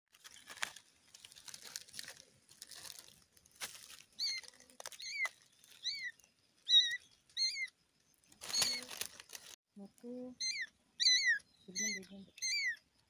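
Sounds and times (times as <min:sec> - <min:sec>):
paws rustling dry leaves: 0:00.1 - 0:06.8, 0:08.4 - 0:09.6
kitten meowing: 0:06.7 - 0:07.7, 0:10.4 - 0:12.8.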